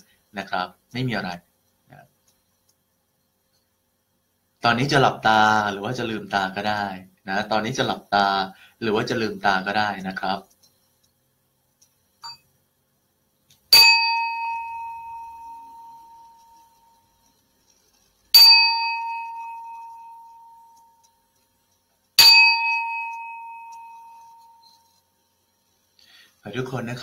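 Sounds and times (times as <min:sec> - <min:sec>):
singing bowl struck ringing: 0:13.7 - 0:17.0, 0:18.3 - 0:21.0, 0:22.2 - 0:24.8.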